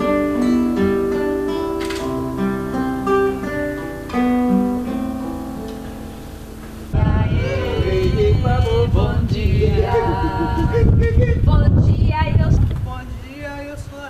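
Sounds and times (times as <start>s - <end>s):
fingerpicked classical guitar: 0.0s - 11.1s.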